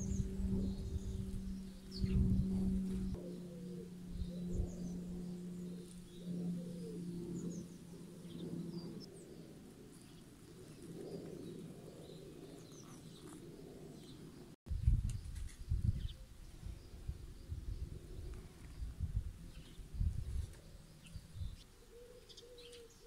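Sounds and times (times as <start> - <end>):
sparrows chirping: 0.0 - 14.5, 15.4 - 23.0
low steady hum: 0.0 - 15.1.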